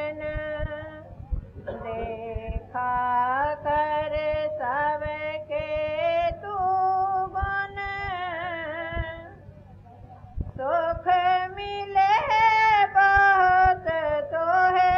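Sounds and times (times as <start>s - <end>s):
woman singing: 0.0s - 1.1s, 1.7s - 9.4s, 10.6s - 14.9s.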